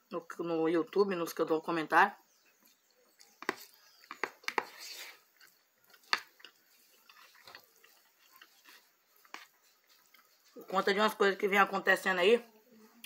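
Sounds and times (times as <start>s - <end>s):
soft chewing: 2.3s - 11.4s.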